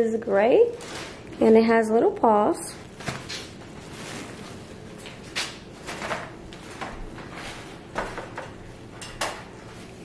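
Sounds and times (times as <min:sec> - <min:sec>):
fabric rustling: 0:02.9 - 0:05.0.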